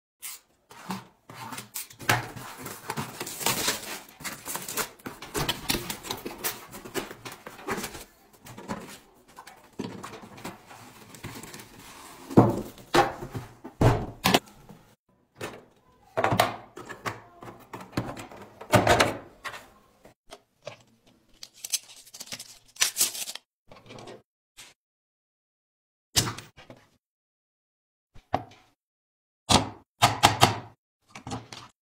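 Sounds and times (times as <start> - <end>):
cardboard scraping and rustling: 0.7 - 13.6.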